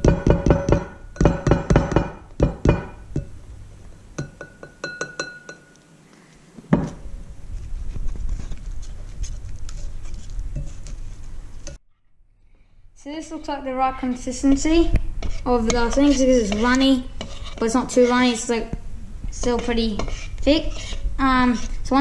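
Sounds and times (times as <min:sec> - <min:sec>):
whisk clinking against bowl: 0:04.2 - 0:05.8, 0:19.4 - 0:21.0.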